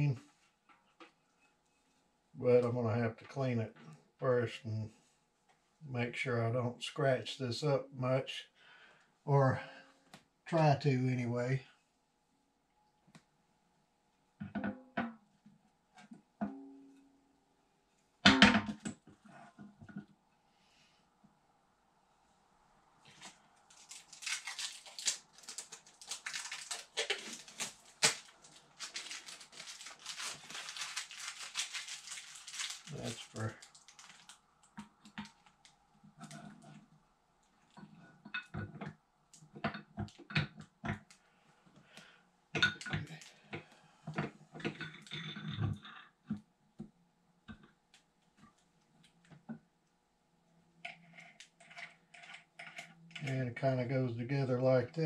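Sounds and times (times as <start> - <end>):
packaging crinkling: 23.1 - 36.4
plastic parts clicking and knocking: 23.7 - 35.6.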